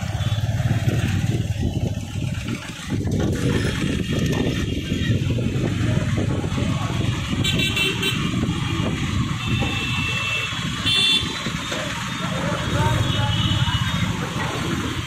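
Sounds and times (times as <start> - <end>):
street traffic rumble: 0.0 - 15.0
vehicle horns honking: 7.3 - 8.5, 9.3 - 14.2.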